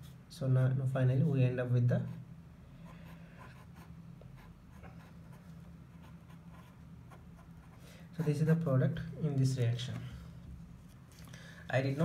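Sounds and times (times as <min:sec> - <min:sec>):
faint low hum: 0:00.0 - 0:12.0
pen scratching on paper: 0:03.0 - 0:08.4.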